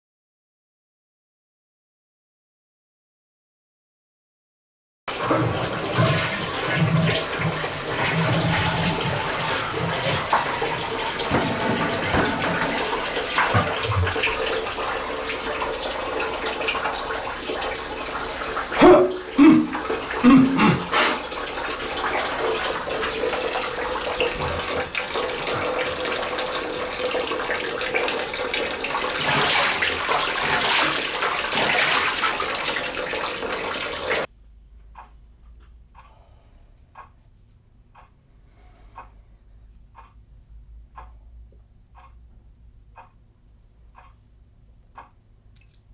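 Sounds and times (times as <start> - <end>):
tap water running and splashing: 5.1 - 34.3.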